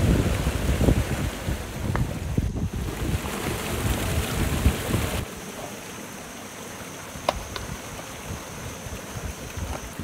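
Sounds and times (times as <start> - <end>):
wind gusting on microphone: 0.0 - 5.3, 7.3 - 10.0
outdoor hiss: 0.0 - 10.0.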